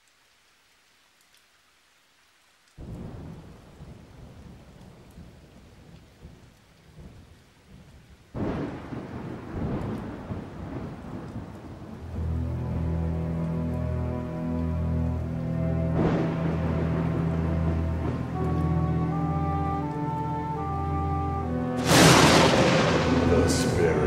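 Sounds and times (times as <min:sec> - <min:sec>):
rain hiss: 0:00.0 - 0:24.0
thunderclap rumbling: 0:02.8 - 0:12.6, 0:15.2 - 0:20.0, 0:21.4 - 0:24.0.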